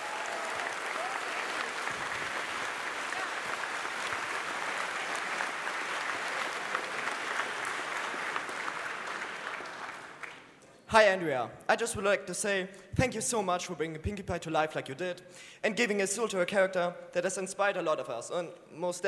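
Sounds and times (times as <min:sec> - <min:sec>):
crowd applause: 0:00.0 - 0:10.6.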